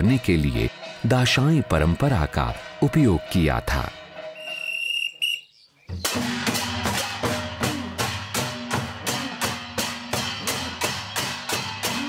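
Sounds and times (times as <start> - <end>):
folk drumming: 5.9 - 12.0.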